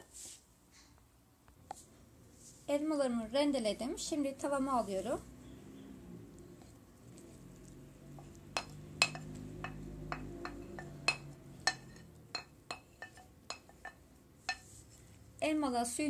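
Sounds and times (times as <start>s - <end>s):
wooden spoon knocking on pan: 8.6s - 14.7s.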